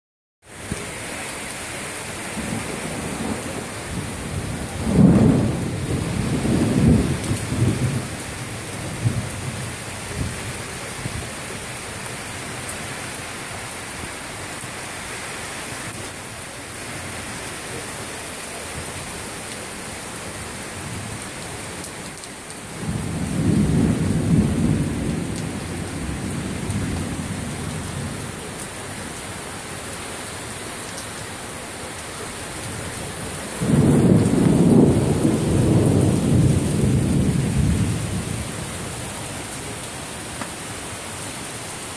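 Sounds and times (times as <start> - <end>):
heavy rain pouring: 0.4 - 41.9
thunder rumbling: 2.4 - 11.2, 22.8 - 28.5, 33.5 - 39.2.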